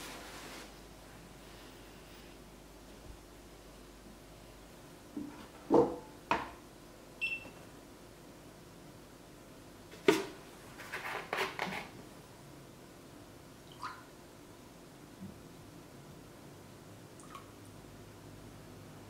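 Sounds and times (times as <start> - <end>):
kitchen scale beep: 7.2 - 7.6.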